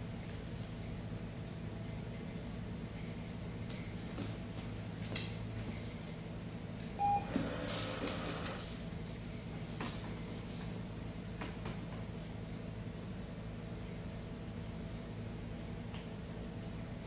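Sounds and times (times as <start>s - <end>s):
dispenser whirring and rattling: 6.8s - 12.0s
short electronic beep: 7.0s - 7.4s.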